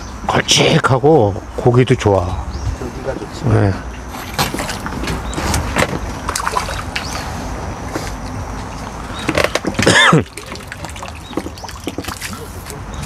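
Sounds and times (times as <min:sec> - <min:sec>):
water splashing and sloshing: 0:04.0 - 0:13.0.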